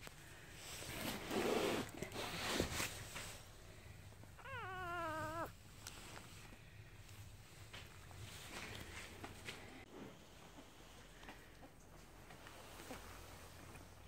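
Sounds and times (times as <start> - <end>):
rustling close to microphone: 0.0 - 9.8
puppy whining cry: 4.4 - 5.6.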